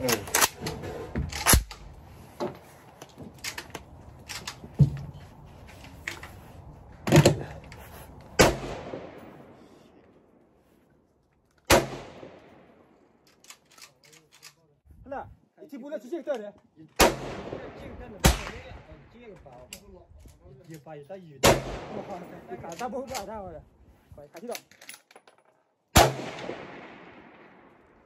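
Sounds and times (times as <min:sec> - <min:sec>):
gunshots with long echo: 0:08.4 - 0:09.9, 0:11.7 - 0:13.1, 0:17.0 - 0:19.0, 0:21.4 - 0:22.4, 0:25.9 - 0:28.0.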